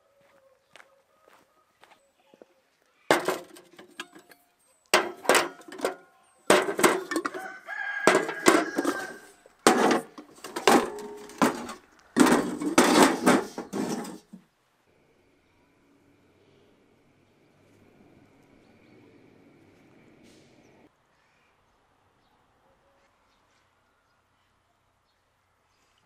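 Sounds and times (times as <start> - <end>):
metal pots and pans clanking: 3.1 - 4.4, 5.0 - 14.4.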